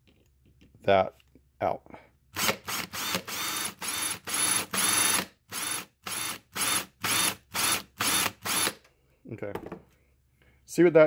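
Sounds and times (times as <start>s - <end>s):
cordless drill grinding into steel: 2.4s - 8.8s.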